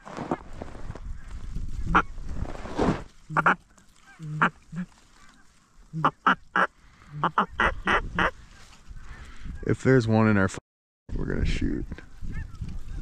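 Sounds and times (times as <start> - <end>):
duck and goose calls: 1.1 - 2.2, 3.3 - 9.2.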